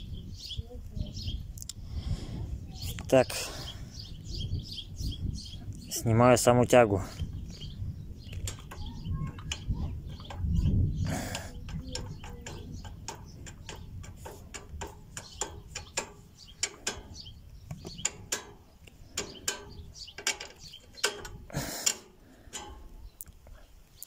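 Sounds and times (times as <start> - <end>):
metallic clicks and knocks: 8.2 - 23.4.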